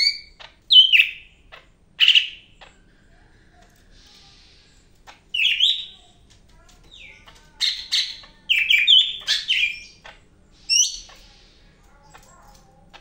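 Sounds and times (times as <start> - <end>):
bird singing whistled phrases: 0.0 - 1.3, 5.4 - 6.0.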